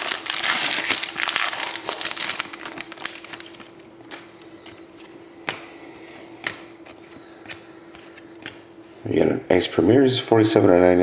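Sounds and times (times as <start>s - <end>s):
foil wrapper crinkling: 0.0s - 4.3s
faint steady hum: 0.0s - 11.0s.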